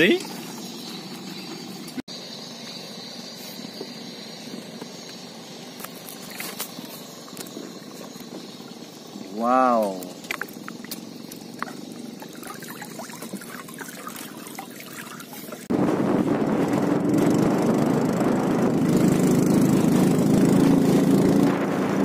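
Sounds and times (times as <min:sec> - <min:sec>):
boat engine: 0:04.1 - 0:22.0
water trickling and splashing: 0:05.8 - 0:15.7
rushing water: 0:08.6 - 0:15.7.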